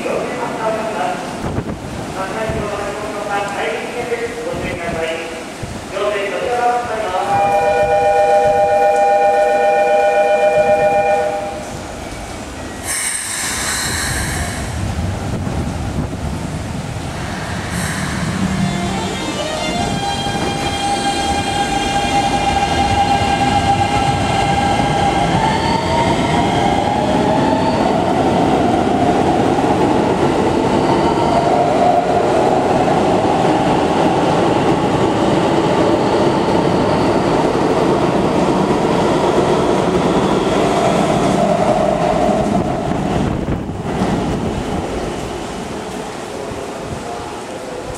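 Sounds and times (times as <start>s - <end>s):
train cars rumbling and clacking: 10.5s - 47.9s
train inverter rising tones: 17.2s - 29.3s.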